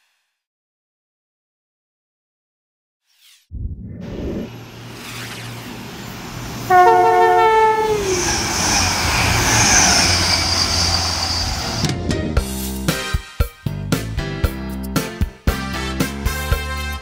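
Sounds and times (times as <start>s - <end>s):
train rumbling past: 3.6s - 12.7s
two-note train horn: 6.7s - 8.3s
hiss of wheels on rail: 7.8s - 11.9s.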